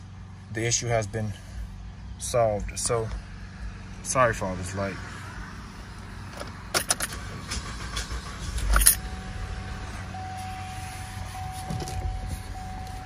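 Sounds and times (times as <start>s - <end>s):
car keys jangling: 6.3s - 9.1s.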